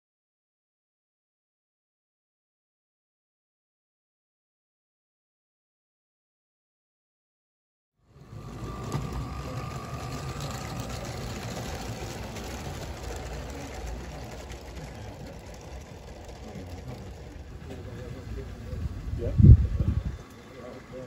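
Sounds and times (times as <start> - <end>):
model train motor hum: 8.0 - 21.0
wheel rumble on track: 8.1 - 21.0.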